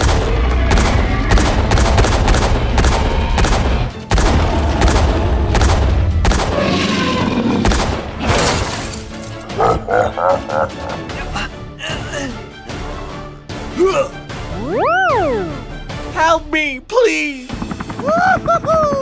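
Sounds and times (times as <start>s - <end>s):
rapid gunfire: 0.0s - 6.7s, 7.6s - 8.1s
background music: 0.0s - 19.0s.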